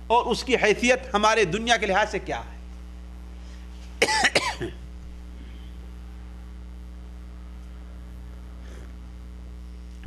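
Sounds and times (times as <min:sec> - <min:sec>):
electrical mains hum: 0:00.0 - 0:10.0.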